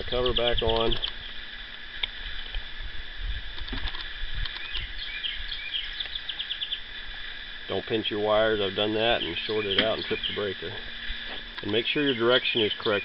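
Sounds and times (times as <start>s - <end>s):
rapid high chirping: 8.4s - 13.0s.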